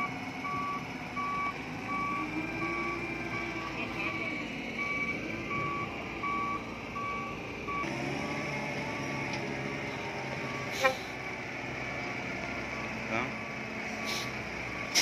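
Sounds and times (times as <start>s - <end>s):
reversing alarm beeping: 0.0s - 4.2s, 4.8s - 9.3s, 10.4s - 11.1s, 12.8s - 15.0s
crane engine running: 0.0s - 15.0s.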